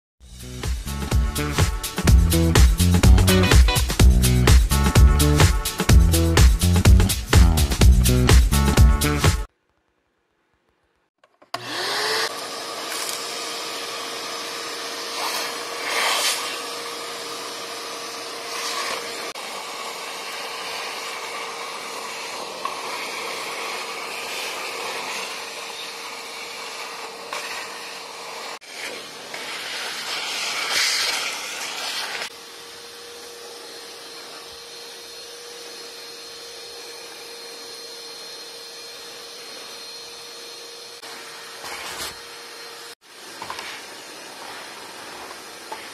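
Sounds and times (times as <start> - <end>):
shop vac motor whining: 11.5 - 45.9.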